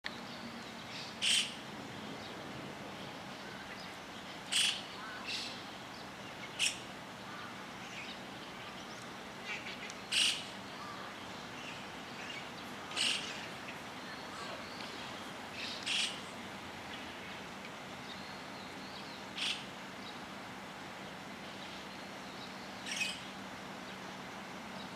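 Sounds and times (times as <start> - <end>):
starlings harsh calls: 0.8 - 1.6, 3.2 - 5.7, 6.3 - 17.4, 18.1 - 19.8, 22.4 - 23.4
faint bird chirps: 21.6 - 24.0.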